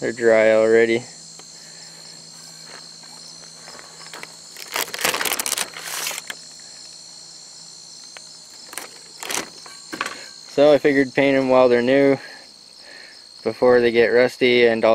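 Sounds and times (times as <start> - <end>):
crickets chirping: 0.0 - 14.9
handling noise: 2.4 - 6.4, 8.1 - 10.6.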